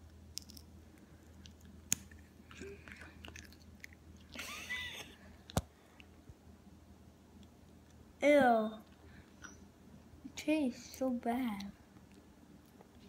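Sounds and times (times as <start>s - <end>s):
person chewing gum: 1.2s - 4.4s.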